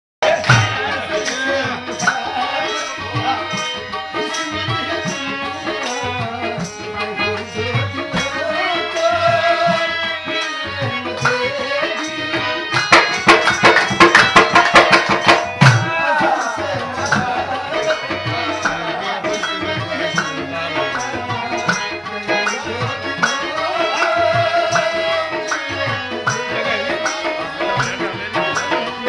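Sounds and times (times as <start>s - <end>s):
barrel drum rhythm: 0.2s - 29.0s
harmoniums playing chords: 0.2s - 29.0s
man singing: 0.2s - 29.0s.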